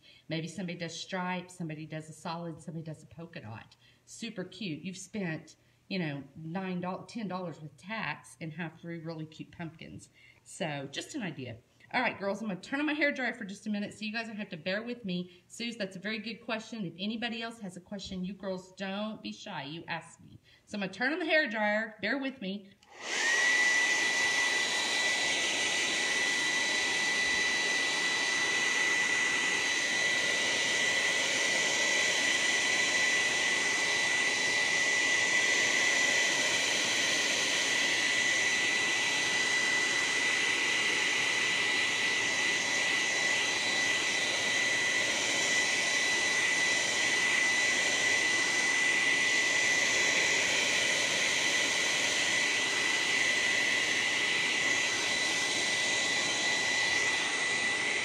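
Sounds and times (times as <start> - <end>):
hair dryer running: 12.0 - 14.4, 22.7 - 58.0.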